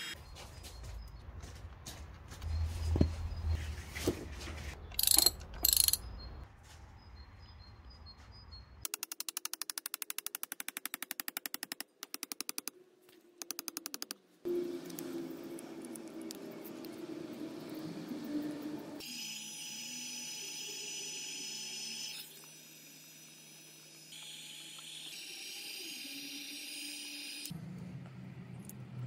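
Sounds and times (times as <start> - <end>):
mechanical ratcheting clicks: 5.0 - 6.0.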